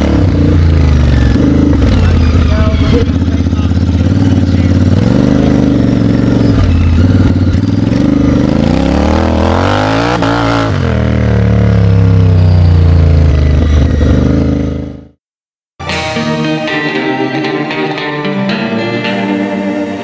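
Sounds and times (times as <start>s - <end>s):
motorcycle engine revving: 0.0s - 15.2s.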